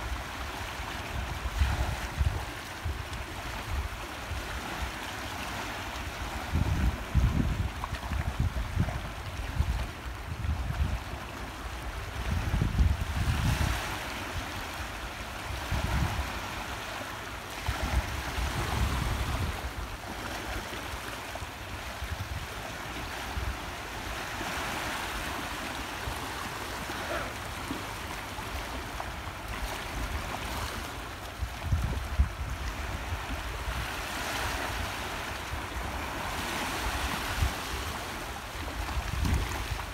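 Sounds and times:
wind rumbling on microphone: 0.0s - 5.0s, 6.0s - 16.8s, 17.5s - 20.2s, 28.4s - 39.9s
waves lapping against rocks: 0.0s - 39.9s.

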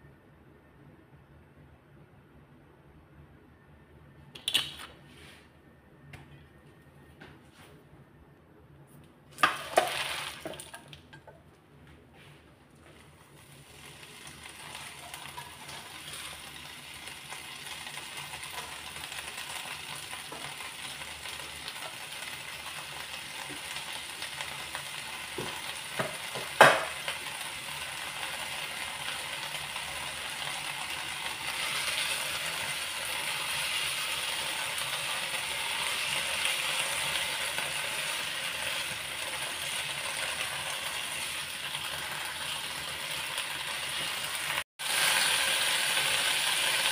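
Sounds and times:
leaves sizzling in hot oil: 9.5s - 10.8s, 12.9s - 46.9s.

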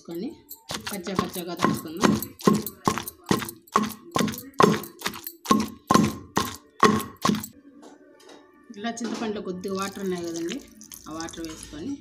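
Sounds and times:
pestle pounding in stone mortar: 0.7s - 7.5s.

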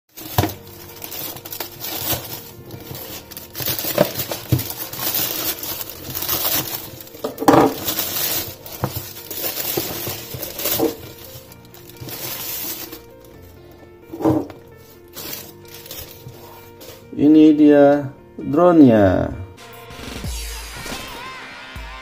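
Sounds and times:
plastic tearing: 0.1s - 17.0s
plastic mailer bag crinkling: 0.1s - 17.1s.

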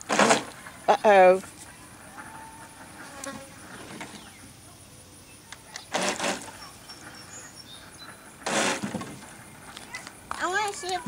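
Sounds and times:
propeller churning spray: 0.0s - 0.5s
toy boat motor buzzing: 0.0s - 0.6s, 5.9s - 6.7s, 8.4s - 9.1s.

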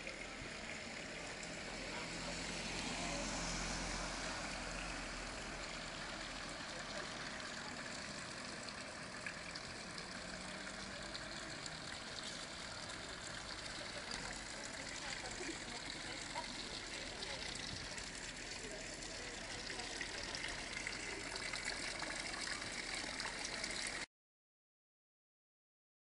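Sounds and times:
vehicle engine humming: 0.0s - 23.8s
outdoor noise: 0.0s - 24.1s.

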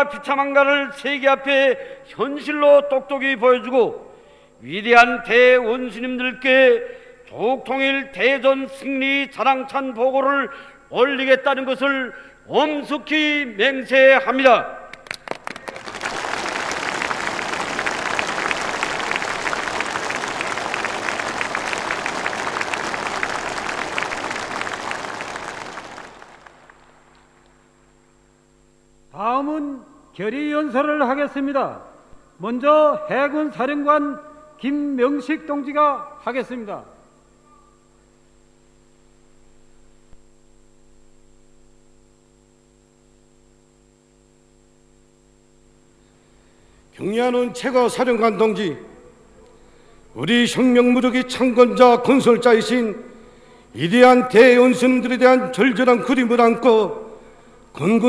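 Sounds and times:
electrical mains hum: 0.0s - 58.0s
crowd applauding: 15.0s - 27.1s.

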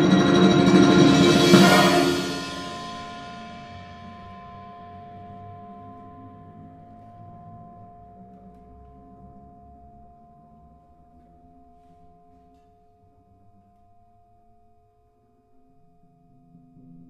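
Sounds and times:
symphonic band music: 0.0s - 3.5s.

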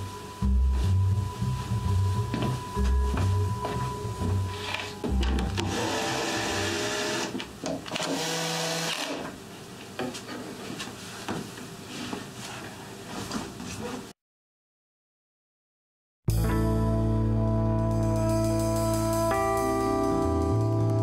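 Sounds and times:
background music: 0.0s - 7.2s, 16.3s - 21.0s
cordless drill whirring: 5.6s - 9.2s.

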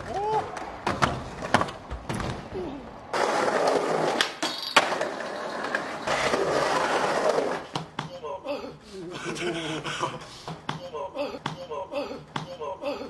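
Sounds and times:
skateboard wheels rolling: 0.0s - 7.8s.

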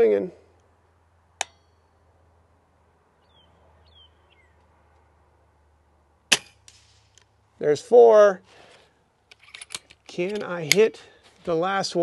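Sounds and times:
bird chirping: 3.1s - 4.8s
air rifle shot: 6.3s - 7.1s.

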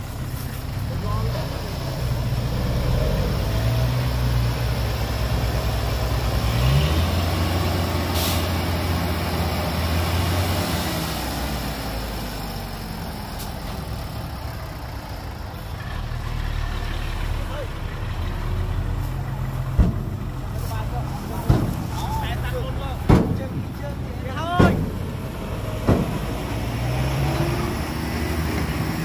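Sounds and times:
diesel truck engine running: 0.0s - 29.0s
short hiss: 8.1s - 8.6s.

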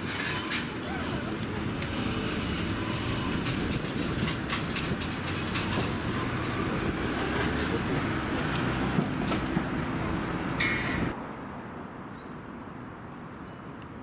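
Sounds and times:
tram equipment humming: 0.0s - 11.2s.

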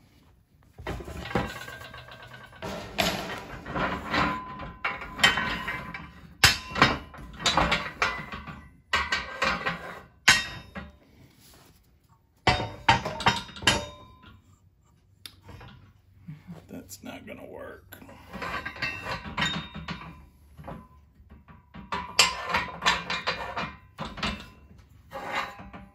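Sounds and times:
steel clanking and knocking: 0.8s - 11.0s, 12.4s - 14.4s, 18.2s - 25.9s
ringing metal-on-metal hits: 10.3s - 10.9s, 12.5s - 14.4s.

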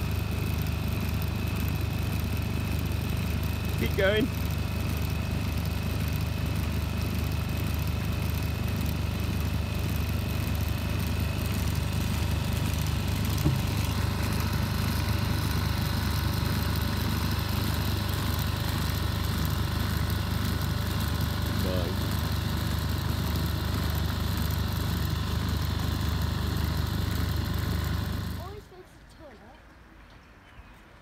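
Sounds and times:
boat engine throbbing: 7.4s - 28.6s
short knock: 13.4s - 13.7s.

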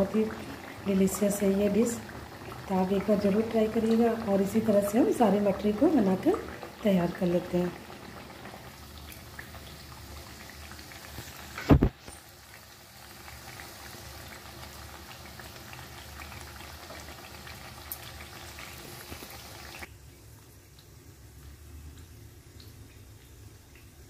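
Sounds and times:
dough frying in hot oil: 0.0s - 24.0s.

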